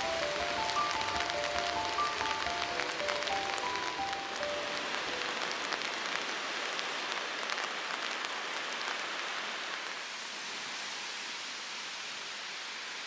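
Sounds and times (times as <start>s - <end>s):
raindrops ticking: 0.0s - 10.0s
small waves washing on beach: 0.0s - 13.0s.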